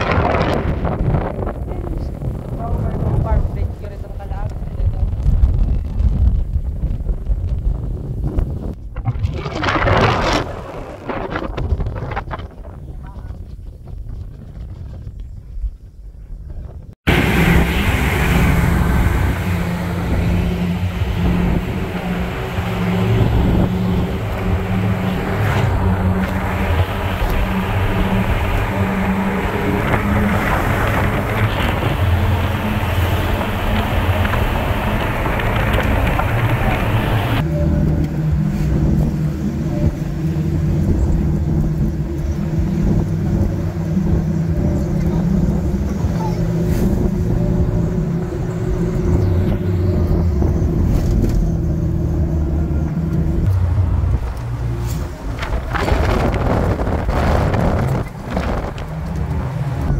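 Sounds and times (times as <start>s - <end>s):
road and wind noise: 0.0s - 59.9s
vehicle engine humming: 17.0s - 59.9s.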